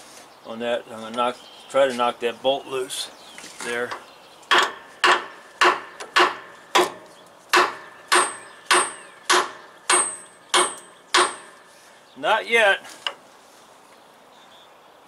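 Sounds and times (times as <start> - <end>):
hammer striking metal bolt: 4.5 - 11.6.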